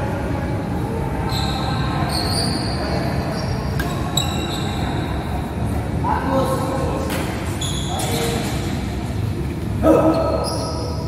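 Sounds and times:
steady hum of hall: 0.0s - 11.0s
sneakers squeaking on court: 1.3s - 5.2s, 7.2s - 8.8s.

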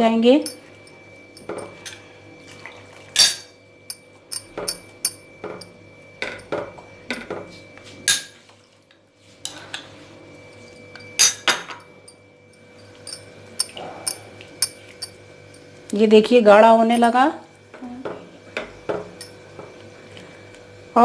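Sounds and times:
spoon clinking against bowl and pan: 3.2s - 6.6s, 10.9s - 15.7s.

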